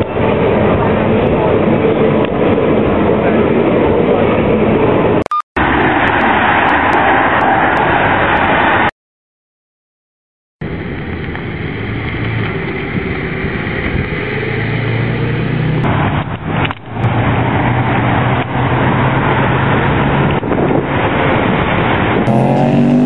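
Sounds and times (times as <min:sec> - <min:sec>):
car engine humming: 0:22.3 - 0:23.0.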